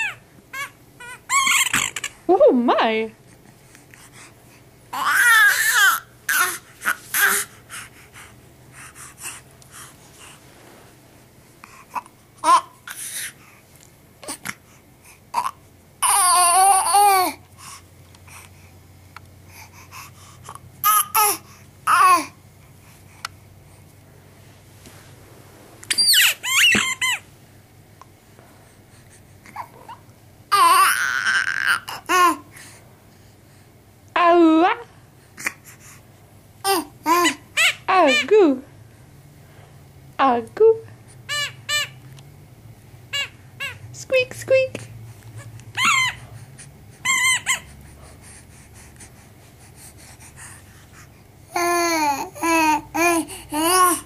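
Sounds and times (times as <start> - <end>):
baby squeaks and breaths: 0.0 - 2.2, 5.0 - 7.9, 12.4 - 13.4, 25.9 - 27.2, 45.4 - 46.4, 47.0 - 47.8
baby squealing: 0.0 - 2.2, 5.0 - 7.5, 25.9 - 27.2, 30.5 - 32.4, 36.7 - 38.3, 41.3 - 42.0, 43.1 - 43.8, 45.8 - 46.2, 47.0 - 47.7
rubber squeaky toy squeaks: 1.3 - 2.1, 25.9 - 27.2, 45.8 - 46.2, 47.0 - 47.6.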